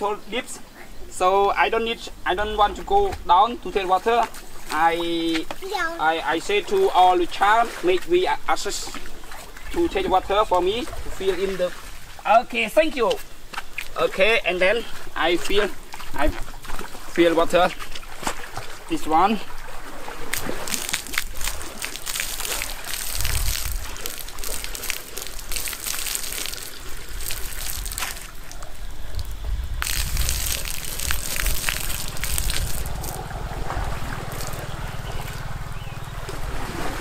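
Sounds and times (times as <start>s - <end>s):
low rumble: 1.9s - 4.7s, 28.9s - 37.0s
water splashing into a drum: 15.7s - 35.6s, 36.2s - 37.0s.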